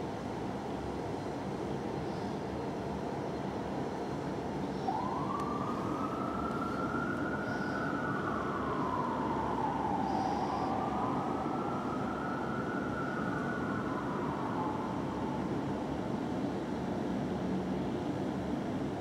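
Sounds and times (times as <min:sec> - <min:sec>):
fire truck siren wailing: 0:04.9 - 0:16.0.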